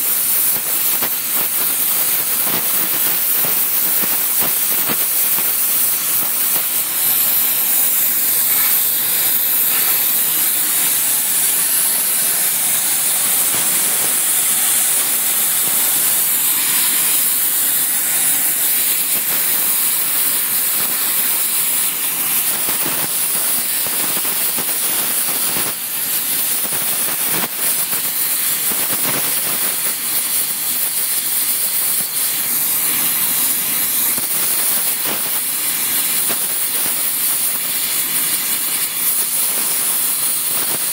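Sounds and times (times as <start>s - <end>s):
flame torch hissing: 0.0s - 40.9s.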